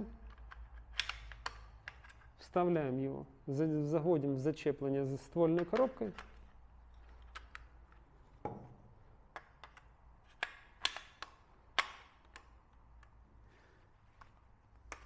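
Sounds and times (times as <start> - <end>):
metallic clicks of gun parts: 0.2 - 2.4, 9.3 - 13.2.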